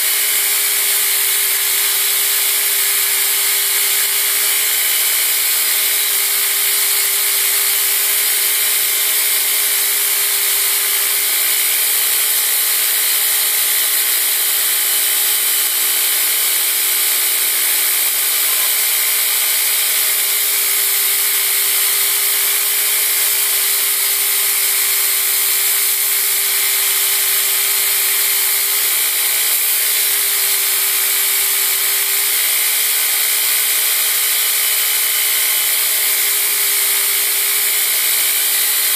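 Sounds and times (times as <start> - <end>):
motor and belt whine: 0.0 - 38.9
steel grinding on abrasive belt: 0.0 - 38.9.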